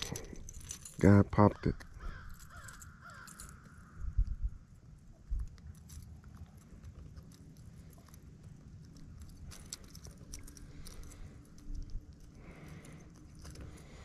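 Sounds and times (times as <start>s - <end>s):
fingers clicking and rustling: 5.4s - 14.0s.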